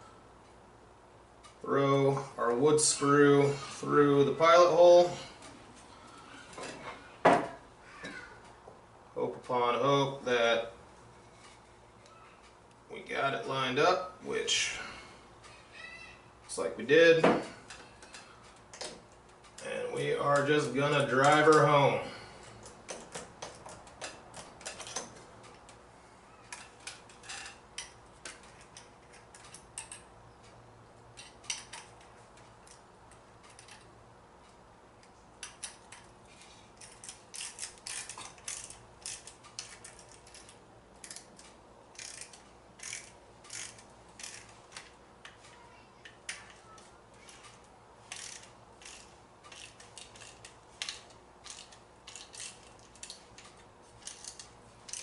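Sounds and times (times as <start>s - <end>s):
ratcheting screwdriver clicking: 36.8s - 45.4s, 47.3s - 55.0s.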